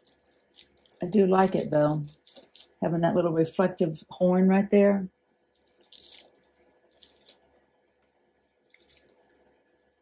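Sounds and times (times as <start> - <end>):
plastic film crinkling: 0.0 - 2.9, 5.6 - 7.5, 8.6 - 9.5.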